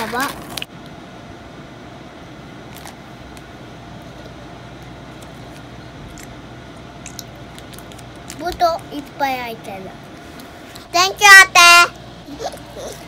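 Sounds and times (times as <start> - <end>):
room hum: 0.0 - 13.0
snack wrapper crinkling: 7.0 - 8.6.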